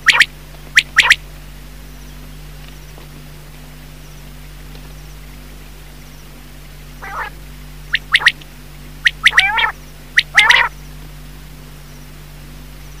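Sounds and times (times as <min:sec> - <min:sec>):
quail calling: 0:00.0 - 0:01.2, 0:07.0 - 0:08.4, 0:09.0 - 0:10.8
steady low hum: 0:00.0 - 0:13.0.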